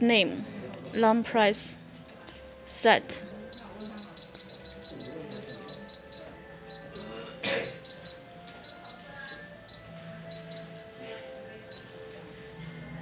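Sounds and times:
keypad beeping: 0.5 - 1.2, 3.5 - 10.7, 11.7 - 11.9.

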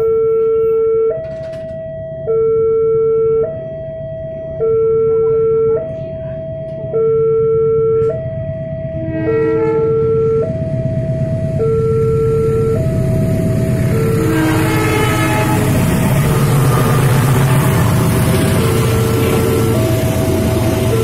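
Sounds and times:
train rumble and rail noise: 1.1 - 2.0, 3.4 - 4.6, 5.8 - 7.0, 8.0 - 21.0.

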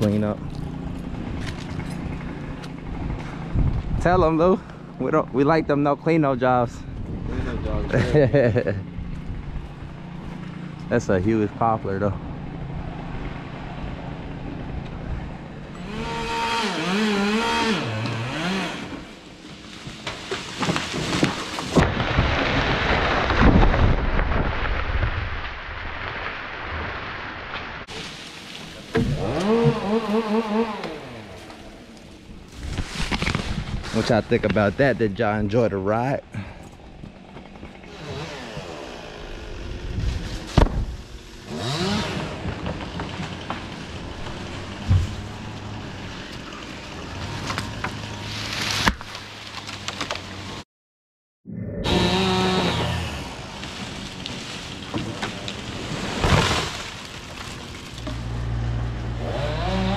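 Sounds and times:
wood cracking: 0.0 - 4.8, 16.3 - 34.9, 36.4 - 50.6, 52.6 - 59.9
chainsaw cutting: 15.7 - 21.8, 27.9 - 33.5, 36.4 - 50.6, 51.9 - 59.9
tree crashing through branches: 18.2 - 34.9, 37.4 - 50.6, 51.9 - 59.9.

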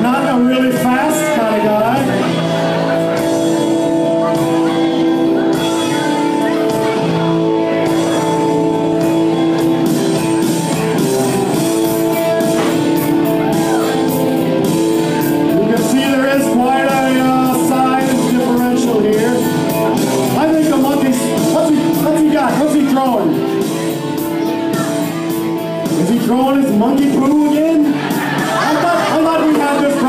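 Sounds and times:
guitar music with beat: 0.0 - 30.0.

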